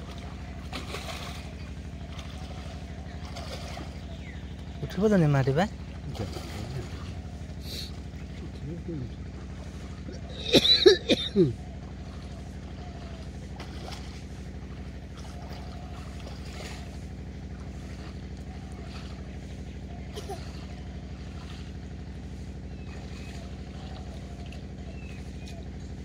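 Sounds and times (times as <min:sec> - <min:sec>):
engine humming steadily: 0:00.0 - 0:26.0.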